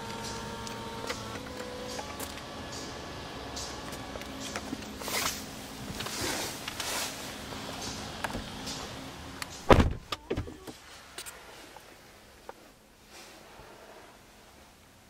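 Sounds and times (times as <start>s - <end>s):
small electric motor humming: 0.0s - 5.1s
car door shutting: 9.6s - 10.8s.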